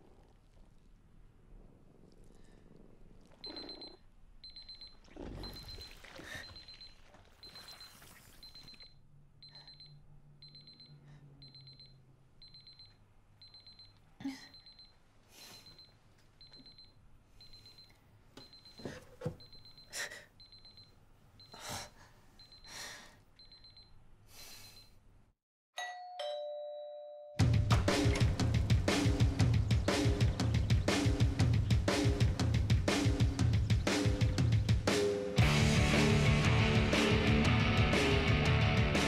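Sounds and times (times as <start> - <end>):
kitchen timer beeping: 3.4 - 15.0, 15.6 - 18.8, 19.4 - 21.6
two-note doorbell chime: 25.8 - 27.4.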